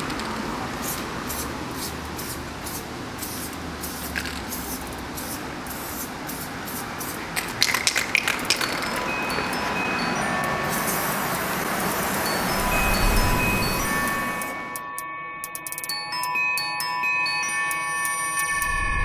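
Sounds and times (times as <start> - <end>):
spray can hissing: 0.8 - 9.4, 10.6 - 14.5.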